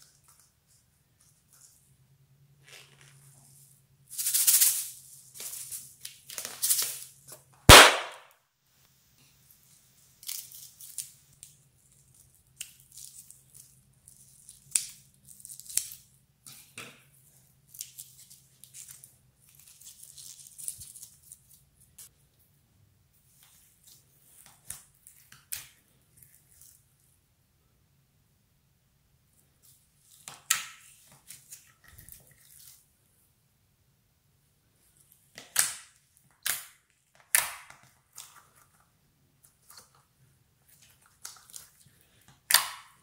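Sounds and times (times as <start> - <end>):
balloon popping: 7.7 - 8.3.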